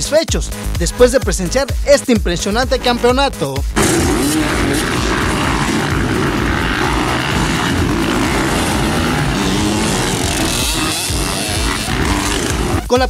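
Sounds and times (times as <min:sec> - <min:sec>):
motocross bike engines revving: 0:03.8 - 0:12.9.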